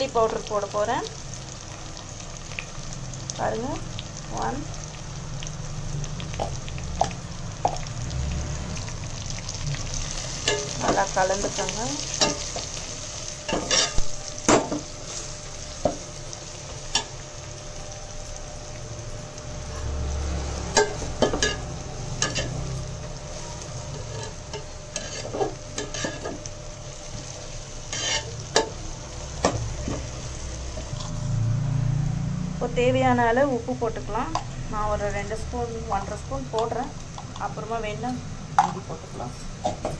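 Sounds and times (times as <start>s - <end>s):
food sizzling in oil: 0.0s - 39.9s
metal spatula scraping pot: 23.9s - 26.4s, 27.9s - 28.4s.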